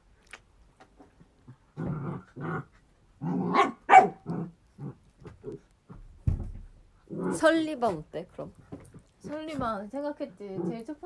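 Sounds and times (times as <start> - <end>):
dog barking and growling: 1.4 - 5.7, 7.0 - 8.1.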